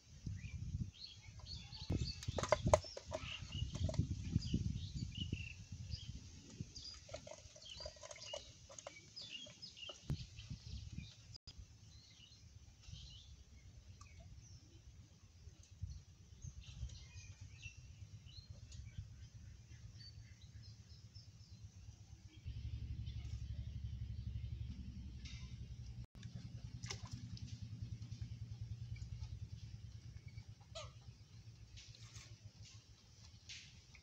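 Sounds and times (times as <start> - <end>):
low background rumble: 0.0 - 34.0
small birds chirping: 0.3 - 26.0.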